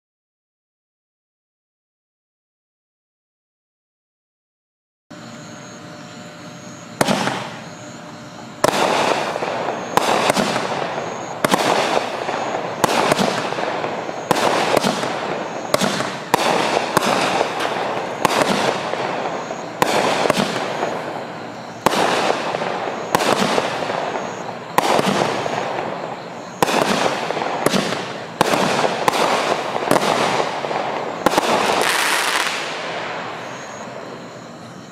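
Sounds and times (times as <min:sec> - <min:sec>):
firework shots with hiss: 0:06.9 - 0:34.5
firework crackle: 0:07.0 - 0:07.6, 0:08.6 - 0:21.2, 0:21.8 - 0:34.2.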